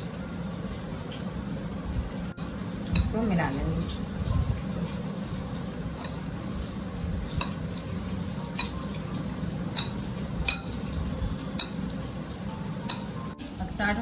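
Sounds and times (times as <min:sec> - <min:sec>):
spoon stirring food in glass bowl: 0:02.4 - 0:03.9, 0:05.4 - 0:13.4
spoon clinking against glass: 0:07.4 - 0:07.9, 0:08.5 - 0:09.1, 0:09.7 - 0:12.1, 0:12.8 - 0:13.3.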